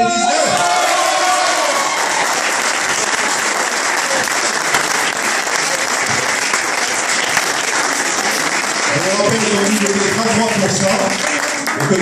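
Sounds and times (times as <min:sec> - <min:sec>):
people applauding: 0:00.4 - 0:12.0.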